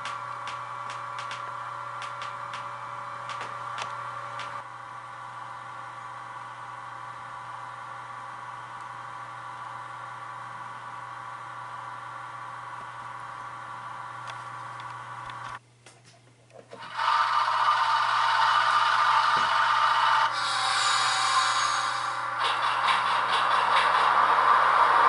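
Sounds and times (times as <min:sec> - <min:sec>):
model train whirring hum: 0:16.7 - 0:25.0.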